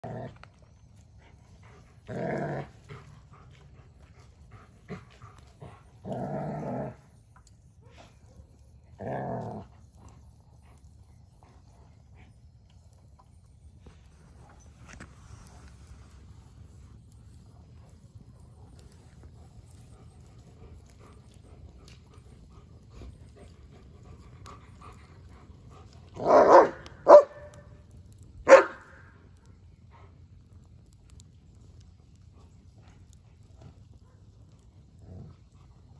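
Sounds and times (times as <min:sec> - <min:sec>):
dog growling: 0:00.0 - 0:00.6, 0:01.6 - 0:03.5, 0:04.5 - 0:07.1, 0:08.9 - 0:10.1
dog barking: 0:26.2 - 0:27.7, 0:28.4 - 0:29.1.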